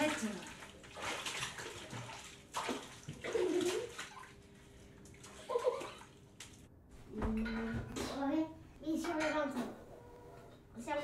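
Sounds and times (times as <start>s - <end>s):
bathwater splashing: 0.0s - 6.8s.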